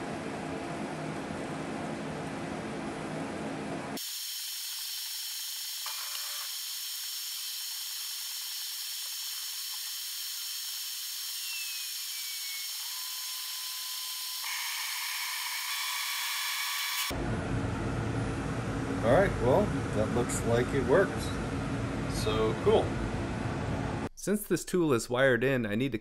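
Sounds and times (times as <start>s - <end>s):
high-pitched machine whine: 4.0s - 21.4s.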